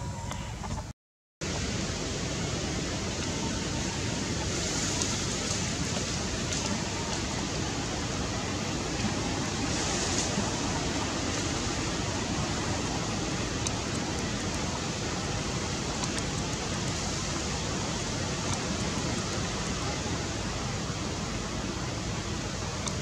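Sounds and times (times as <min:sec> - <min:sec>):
steady outdoor hiss: 0:00.0 - 0:23.0
faint clicks: 0:13.6 - 0:14.6, 0:15.9 - 0:16.9.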